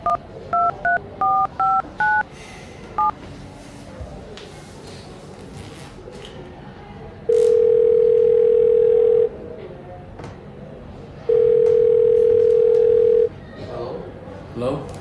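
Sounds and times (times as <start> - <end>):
telephone ringback tone: 7.5 - 9.3, 11.3 - 13.3.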